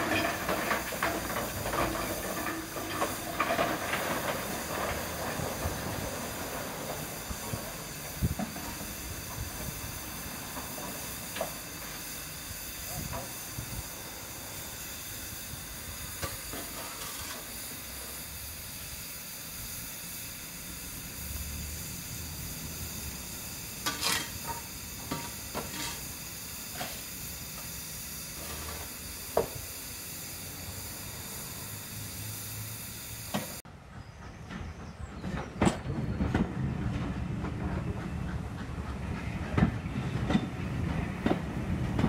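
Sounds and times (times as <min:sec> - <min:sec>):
train rumbling: 0:00.0 - 0:18.3, 0:33.7 - 0:42.0
locomotive steam hissing: 0:00.0 - 0:42.0.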